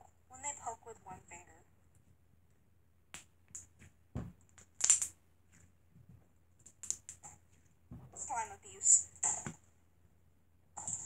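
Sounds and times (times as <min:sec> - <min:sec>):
soft thump: 0:04.1 - 0:04.4.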